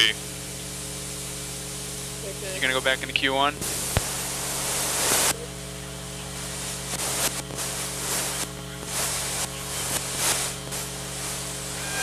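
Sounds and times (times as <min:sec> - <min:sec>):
steady electrical hum: 0:00.0 - 0:12.0
gas hissing in gusts: 0:03.6 - 0:05.4, 0:06.3 - 0:12.0.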